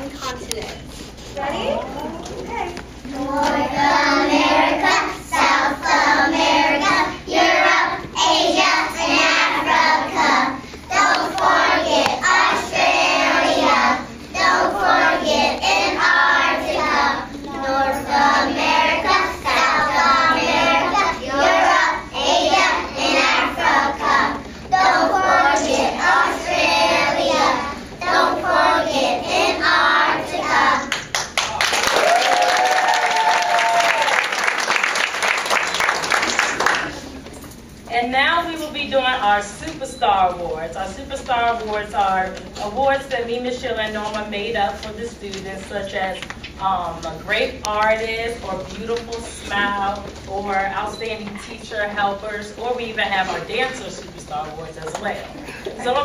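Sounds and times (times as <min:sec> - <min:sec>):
applause: 0:30.9 - 0:37.2
hand claps: 0:30.9 - 0:37.3.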